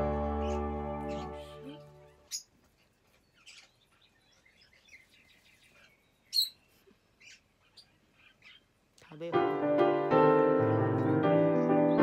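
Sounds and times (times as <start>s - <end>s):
parakeet soft chirps: 3.3s - 8.8s.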